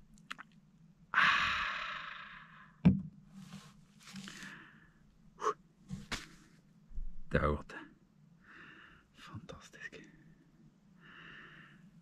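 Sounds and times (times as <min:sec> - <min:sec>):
breathy exhales: 0:01.2 - 0:02.8, 0:11.0 - 0:11.8
man sighing: 0:01.2 - 0:02.8
sharp knock: 0:02.9 - 0:03.1.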